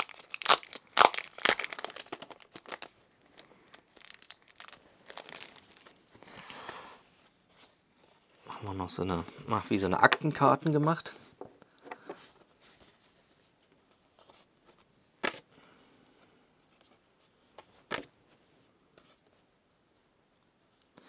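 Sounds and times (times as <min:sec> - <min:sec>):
cards rustling: 0:00.0 - 0:06.8.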